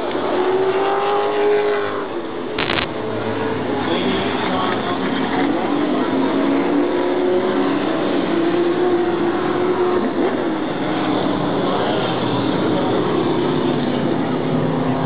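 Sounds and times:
race car engines passing: 0.0 - 15.0.

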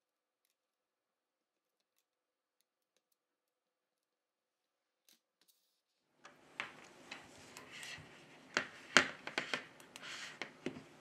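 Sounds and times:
soft rubbing: 6.3 - 11.0.

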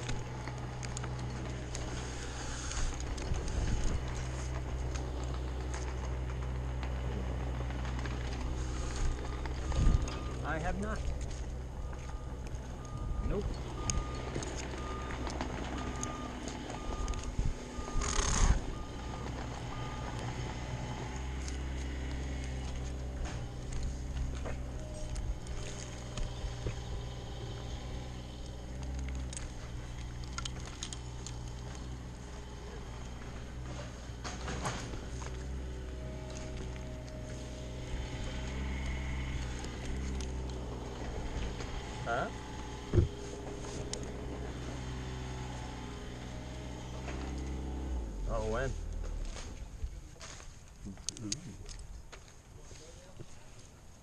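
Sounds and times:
climbing hardware clicking on tree: 0.0 - 32.4, 34.3 - 47.9, 48.8 - 53.7
low engine hum: 0.0 - 54.0
climbing gear knocking on tree trunk: 42.8 - 43.2.

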